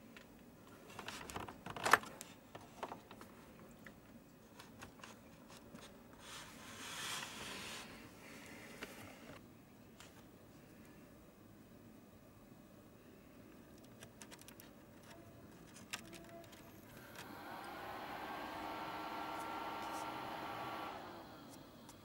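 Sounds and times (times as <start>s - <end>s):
small clicks and knocks: 13.6s - 17.3s.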